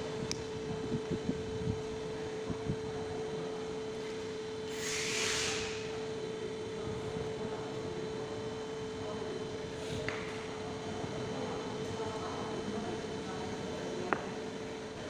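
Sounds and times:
steady hum: 0.0s - 15.0s
brief hiss: 4.7s - 5.9s.

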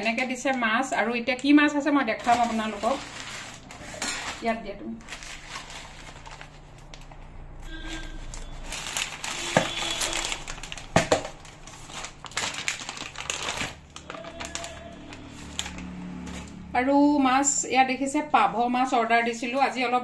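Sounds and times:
plastic packaging crinkling: 2.1s - 7.3s, 8.0s - 16.6s.

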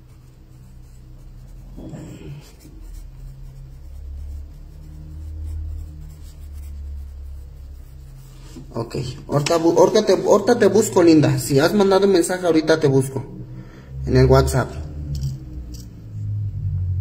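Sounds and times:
pencil writing on notepad: 0.0s - 8.8s
steady low rumble: 0.0s - 17.0s.

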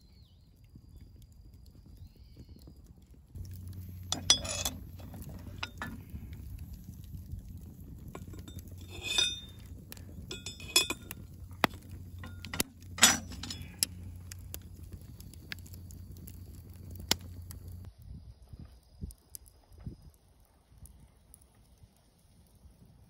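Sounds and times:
metal lids clinking on pots: 3.4s - 6.4s, 8.2s - 14.0s
low rumble: 3.4s - 17.9s.

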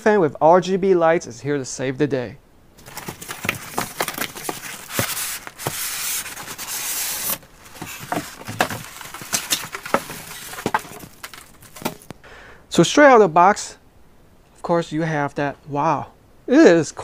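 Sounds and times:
cardboard and foam scraping: 2.8s - 12.1s
plastic bag crinkling: 2.8s - 12.2s.

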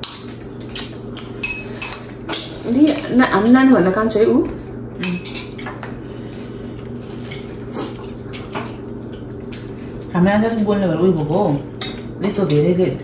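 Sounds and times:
cutlery clinking on dishes: 0.0s - 3.1s
steady low hum: 0.0s - 13.0s.

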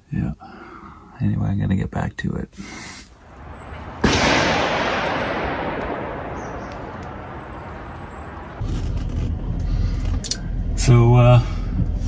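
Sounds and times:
loud boom-like hit: 3.8s - 8.6s.

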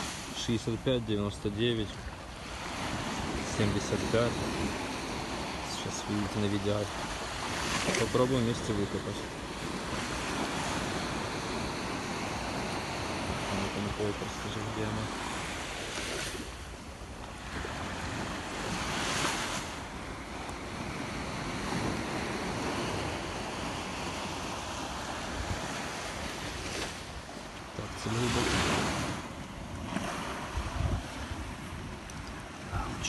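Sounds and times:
wind on microphone: 0.0s - 0.4s, 14.8s - 33.0s
surf washing on beach: 0.0s - 33.0s.

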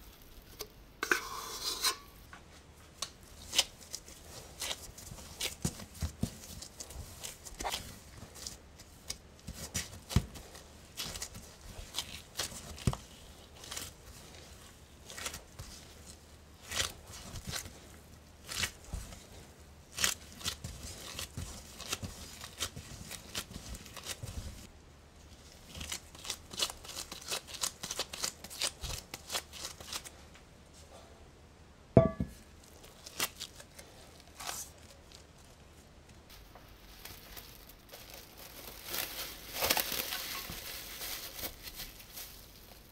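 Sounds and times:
dough being kneaded: 0.0s - 30.9s
disposable gloves crinkling: 2.5s - 30.4s, 32.5s - 42.9s
dough knocking into metal bowl: 32.0s - 32.4s.

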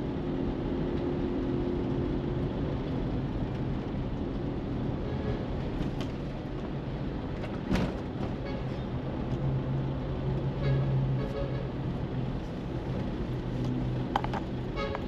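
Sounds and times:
car engine and tyre rumble: 0.0s - 15.0s.

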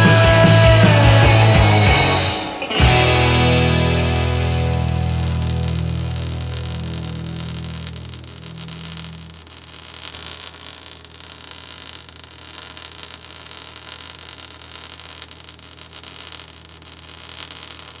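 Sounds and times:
low music notes: 0.0s - 8.1s
static-like hiss: 3.5s - 18.0s.

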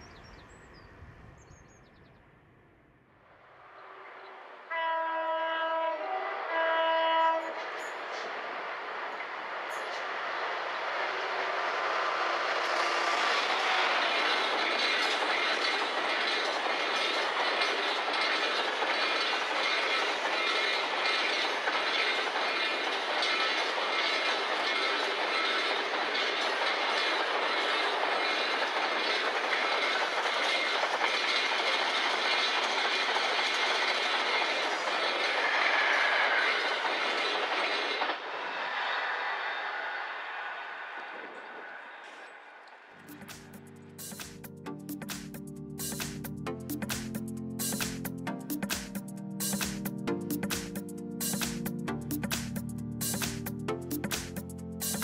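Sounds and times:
wagon wheels clattering over rail joints: 13.5s - 38.0s.

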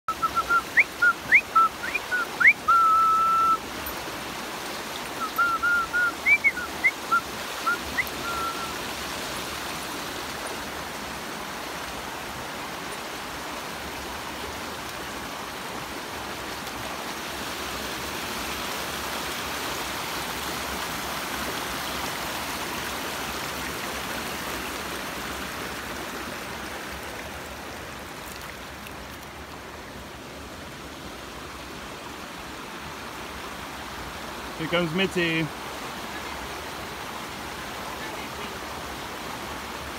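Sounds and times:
person whistling: 0.1s - 3.6s, 5.2s - 8.8s
water rushing over rocks: 0.1s - 39.9s.

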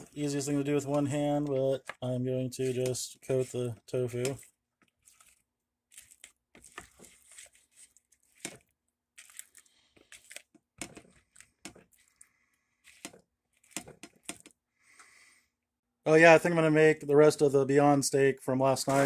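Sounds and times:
spatula scraping a bowl: 2.6s - 8.6s.

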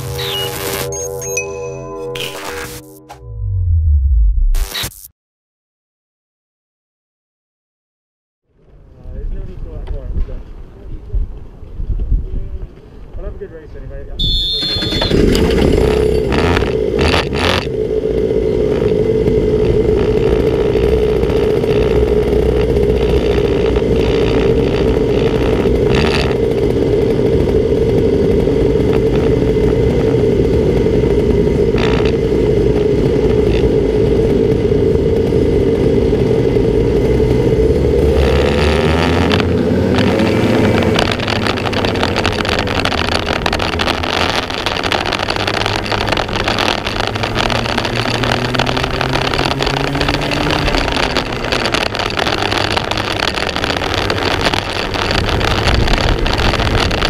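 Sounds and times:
kart engine high note: 0.0s - 4.3s, 14.2s - 57.0s
sharp knocks and rattles: 14.3s - 17.7s.

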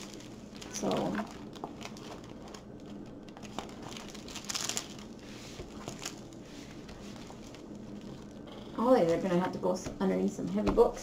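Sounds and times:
plastic sleeve crinkling: 0.0s - 9.4s.

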